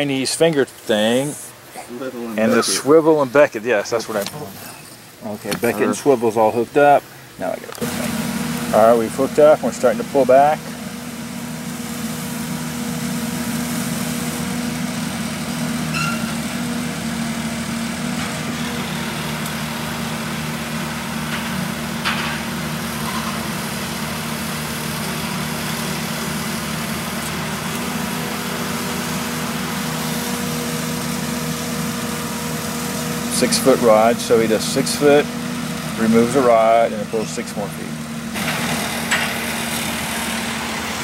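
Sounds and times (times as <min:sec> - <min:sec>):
drill engine running under load: 0:07.8 - 0:41.0.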